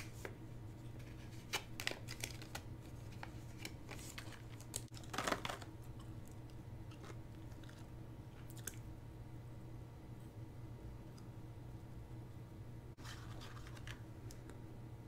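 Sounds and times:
steady low hum: 0.0s - 15.0s
plastic bag crinkling: 3.6s - 5.8s.

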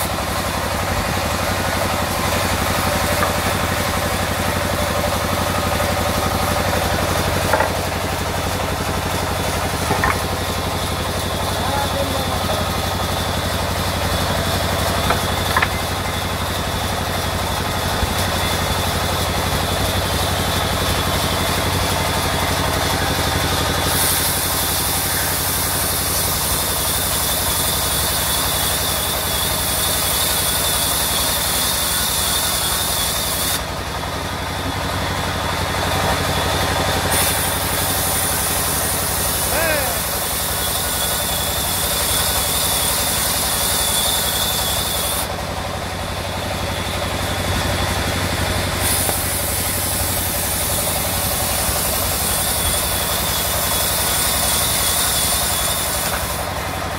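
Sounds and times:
blade hissing in wood: 0.0s - 17.2s, 22.8s - 33.7s, 37.0s - 45.3s, 48.6s - 56.6s
wood knocks: 7.5s - 7.9s, 9.9s - 10.3s
band saw ripping wood: 48.7s - 56.5s.

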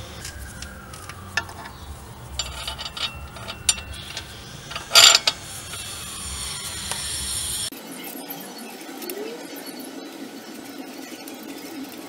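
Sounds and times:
metal clicks and clinks: 0.3s - 6.0s
metal rattling: 0.3s - 7.2s
thin high squeak: 2.4s - 7.6s.

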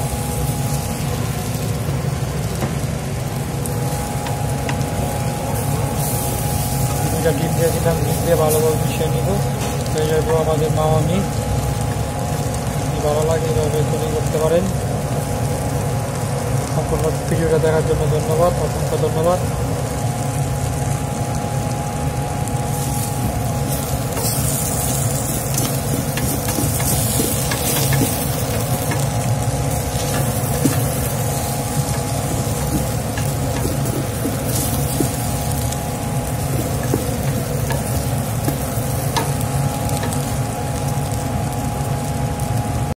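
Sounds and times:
noodles sizzling in a pan: 0.0s - 42.9s
steady low hum: 0.0s - 42.9s
spatula scraping a pan: 29.8s - 35.5s.

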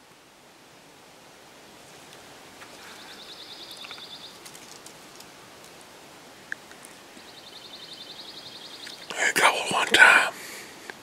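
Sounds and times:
songbird trilling: 2.8s - 4.4s, 7.2s - 9.2s.

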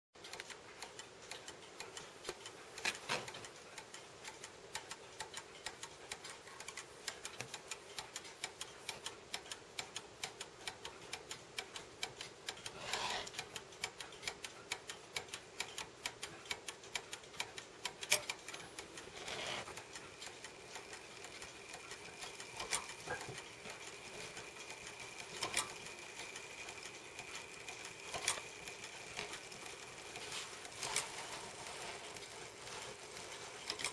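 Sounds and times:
clock mechanism clicks and knocks: 0.2s - 33.9s
clock ticking rapidly: 0.2s - 33.9s.

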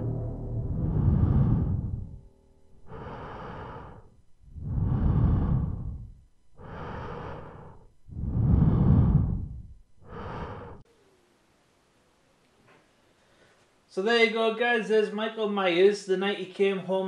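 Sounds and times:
slow heavy breathing: 0.6s - 10.9s.

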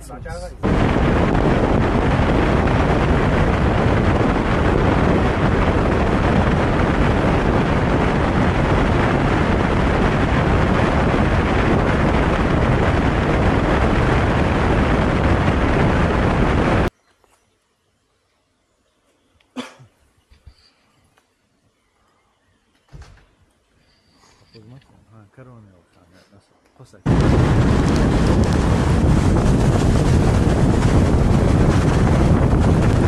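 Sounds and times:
car road and wind noise: 0.0s - 16.9s, 27.1s - 33.0s
wind buffeting microphone: 0.0s - 16.9s, 27.0s - 33.0s.

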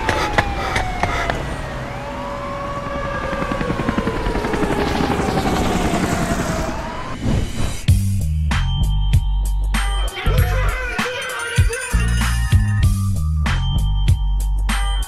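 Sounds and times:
siren wailing: 0.0s - 7.9s
helicopter rotors chopping: 0.0s - 8.0s.

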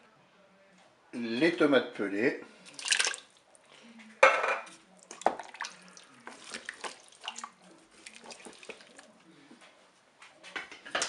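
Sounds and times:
tomatoes splatting into bowl: 2.7s - 3.4s, 4.2s - 9.1s.

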